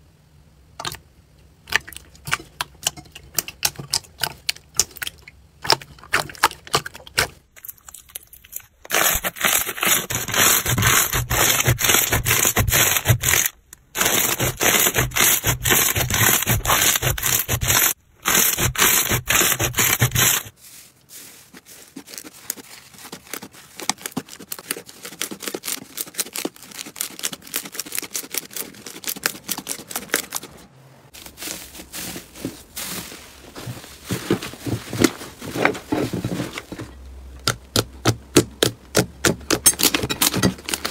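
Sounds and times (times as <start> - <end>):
hands squeezing slime: 3.3 - 20.5, 21.2 - 30.6.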